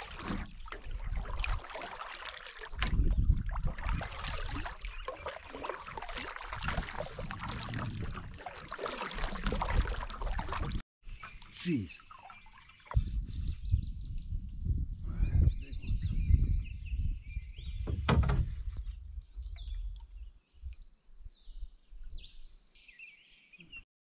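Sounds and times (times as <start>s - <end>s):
paddle strokes in water: 0.0s - 13.0s
water dripping and swirling: 0.0s - 13.1s.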